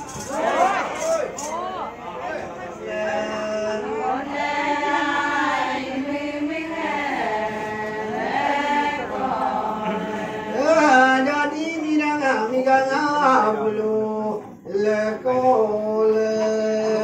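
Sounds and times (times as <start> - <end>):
women singing in unison: 3.8 - 11.2.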